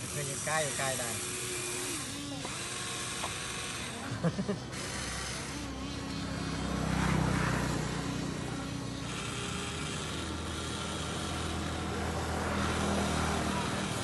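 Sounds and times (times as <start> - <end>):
toy motors and gears whirring: 0.0 - 14.0.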